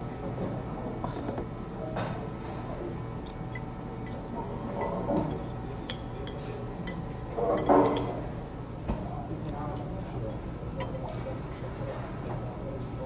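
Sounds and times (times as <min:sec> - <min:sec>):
cutlery clinking on ceramic bowl: 0:03.2 - 0:08.2, 0:10.8 - 0:11.2.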